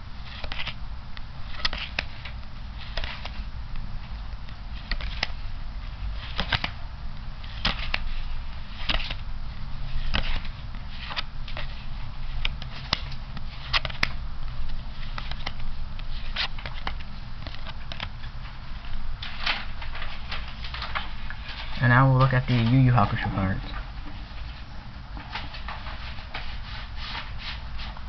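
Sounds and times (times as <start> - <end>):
steady low hum: 0.0 - 28.0
playing cards clicking: 0.3 - 0.8, 1.5 - 3.4, 4.4 - 5.5, 6.2 - 6.8, 7.4 - 9.2, 9.9 - 18.3.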